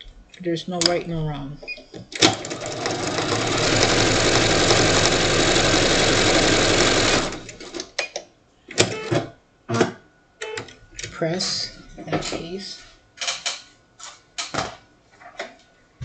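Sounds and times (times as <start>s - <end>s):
sewing machine stitching: 2.2s - 7.8s.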